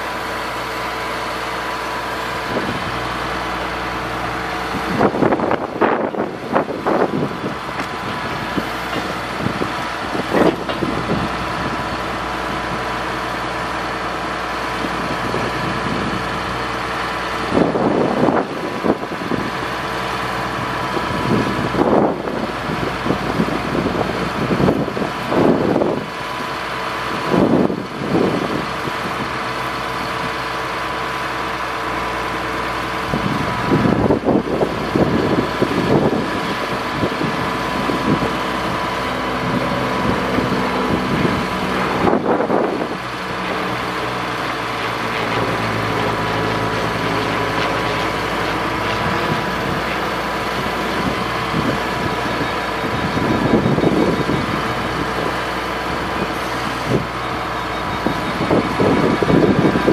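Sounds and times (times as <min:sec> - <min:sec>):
steady whine: 0:00.0 - 0:59.9
truck engine idling: 0:00.0 - 0:59.9
wind gusts on microphone: 0:04.0 - 0:13.0, 0:17.4 - 0:26.4, 0:33.0 - 0:46.2, 0:46.8 - 0:59.9.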